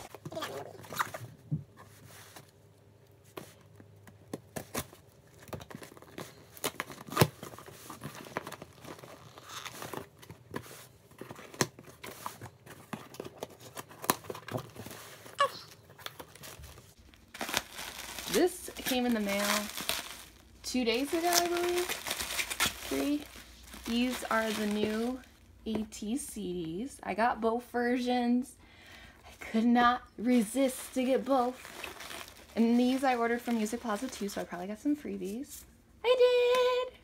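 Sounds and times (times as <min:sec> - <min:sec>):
packing tape tearing: 0:04.5 - 0:10.3, 0:15.6 - 0:20.4, 0:21.0 - 0:25.2, 0:31.0 - 0:34.1.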